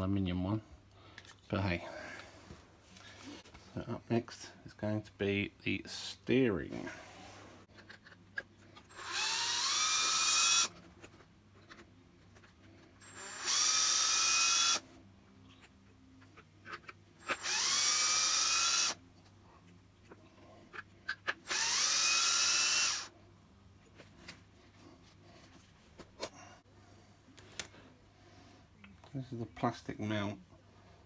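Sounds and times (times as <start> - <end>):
cordless drill whining: 8.9 - 10.7, 13.0 - 14.8, 17.2 - 19.0, 21.4 - 23.1
screws clicking: 8.9 - 10.7, 13.0 - 14.8, 17.2 - 19.0, 21.1 - 23.1.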